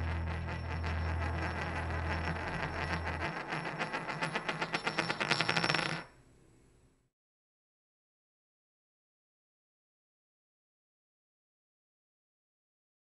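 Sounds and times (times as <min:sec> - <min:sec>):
deep held music note: 0:00.0 - 0:03.2
ring spinning on glassy surface: 0:00.0 - 0:06.2.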